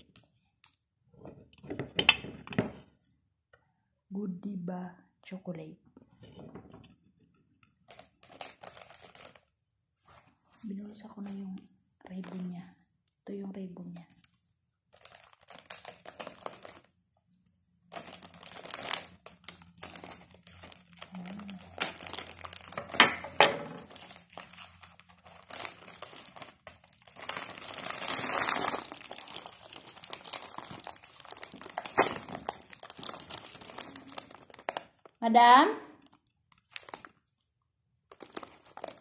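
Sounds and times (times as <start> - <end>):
cellophane wrap crinkling: 7.8 - 10.2, 14.0 - 17.0, 17.8 - 35.2, 35.9 - 39.0.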